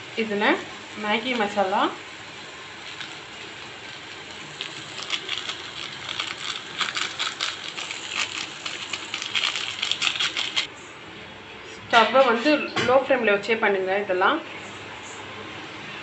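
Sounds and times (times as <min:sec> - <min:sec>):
vegetables sizzling in oil: 0:00.0 - 0:10.7.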